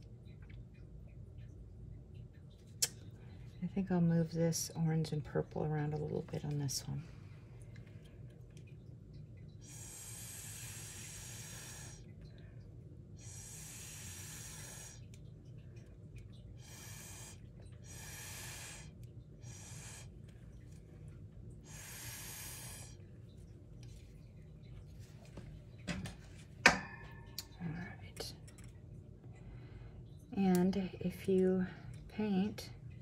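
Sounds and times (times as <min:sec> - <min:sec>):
airy puffs through a straw: 0:13.2 - 0:15.1, 0:16.6 - 0:20.1, 0:21.7 - 0:23.0.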